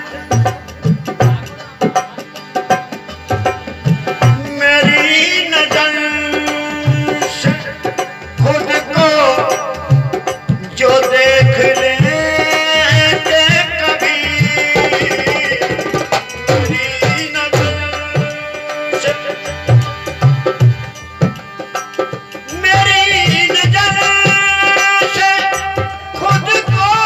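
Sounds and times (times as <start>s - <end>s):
hand drum: 0.0s - 27.0s
harmonium: 0.0s - 27.0s
man singing: 0.0s - 27.0s.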